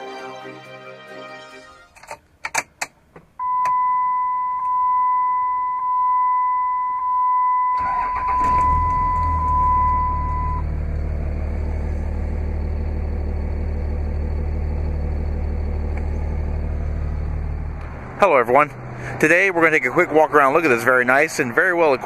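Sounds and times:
dashboard warning chime: 3.4 - 10.7
diesel engine cranking and idling: 7.8 - 22.0.

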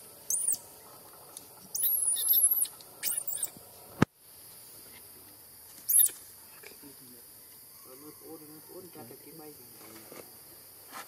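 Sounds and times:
baby monkey squealing: 0.3 - 0.6, 1.7 - 3.6, 5.9 - 6.2.

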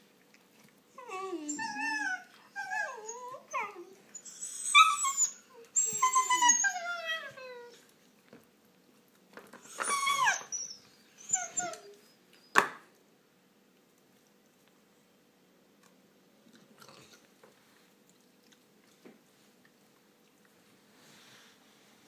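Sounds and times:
puppies whining and yipping: 1.0 - 7.9, 9.6 - 12.6.

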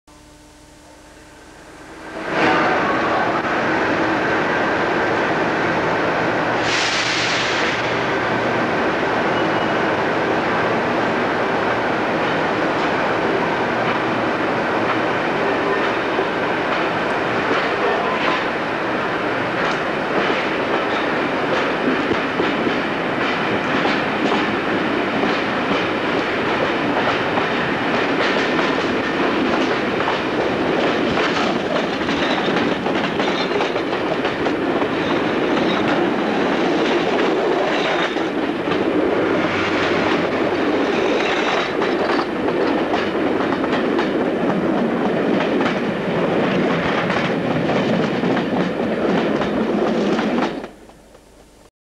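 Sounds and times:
train rumbling on rails: 0.8 - 51.7.

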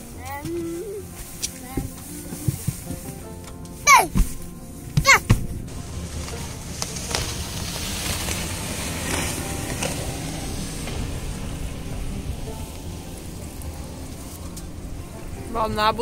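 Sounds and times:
wind and water rushing: 5.4 - 16.0.

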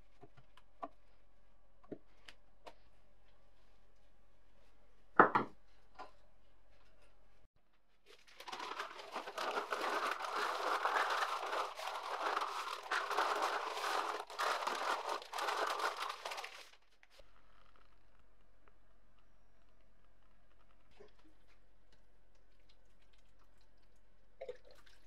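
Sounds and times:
paper crumpling and rustling: 8.0 - 17.0.

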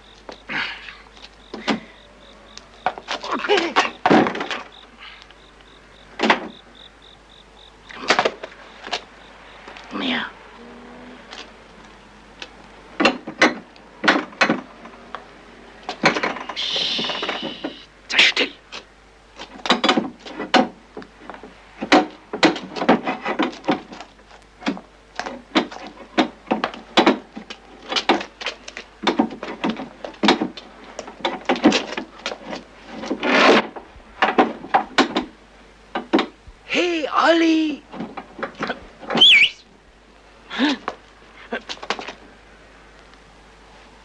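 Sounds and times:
wooden knocks and clatters: 2.8 - 4.8, 12.4 - 15.0, 15.9 - 16.6, 19.4 - 35.4, 36.0 - 36.4
brief hiss: 16.6 - 17.9.

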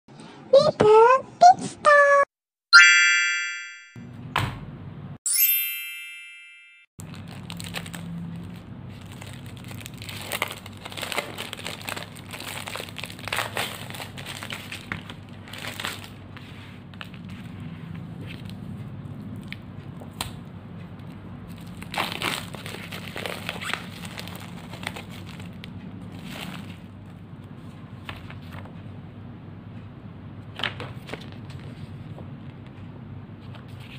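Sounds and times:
plastic wrapping crinkling: 7.0 - 17.5, 21.5 - 27.0.

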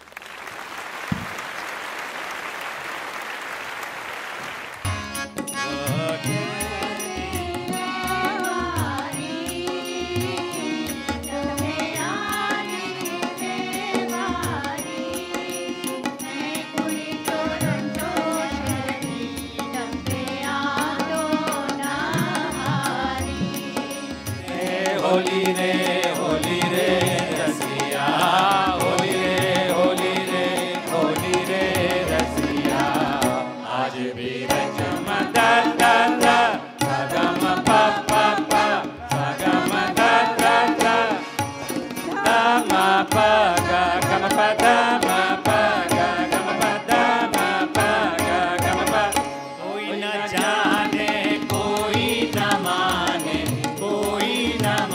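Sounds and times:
tabla strokes: 1.0 - 1.6
choir singing devotional song: 5.4 - 54.9.

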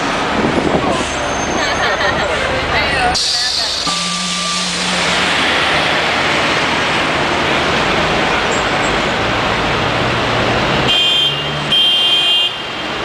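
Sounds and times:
bus driving past: 0.0 - 11.8
street traffic: 0.0 - 13.0
vehicle horn: 10.9 - 12.9.

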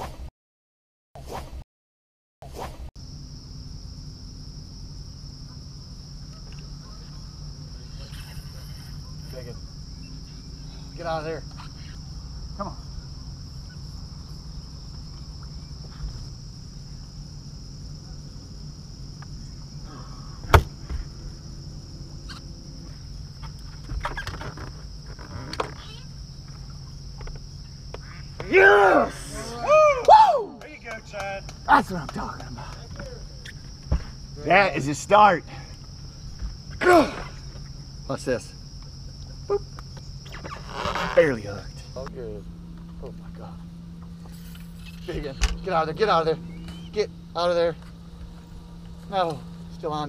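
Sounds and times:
crickets chirping: 2.4 - 50.0
sharp knock: 20.5 - 21.0.

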